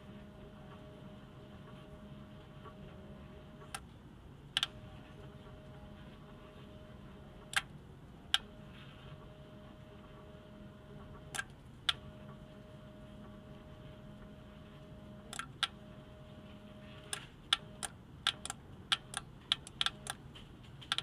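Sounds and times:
faint high hum: 0.0 - 21.0.

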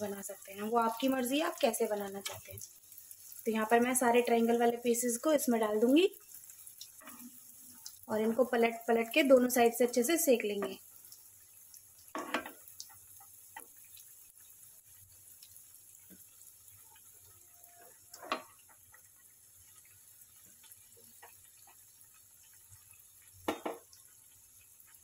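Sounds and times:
bread frying in hot oil: 0.0 - 25.0.

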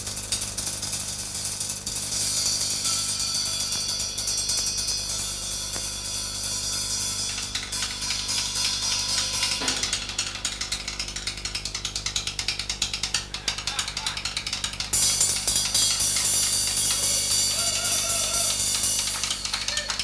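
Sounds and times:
steady low hum: 0.0 - 20.0
cymbal strikes: 0.8 - 10.7, 15.0 - 19.8
shimmering cymbal wash: 1.9 - 10.0, 15.0 - 19.6.

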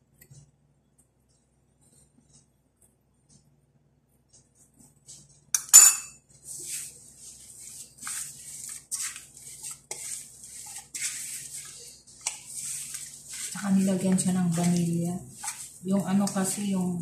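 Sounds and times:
dough scraping in metal basin: 6.4 - 17.0.

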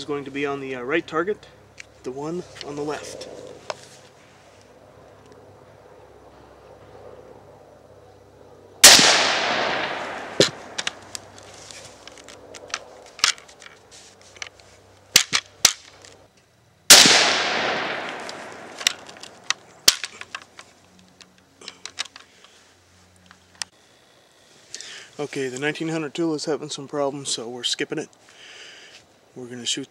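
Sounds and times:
rifle shots with echo: 8.8 - 10.8, 16.9 - 19.0
rifle bolt clicks and knocks: 10.4 - 11.2, 18.1 - 20.7.

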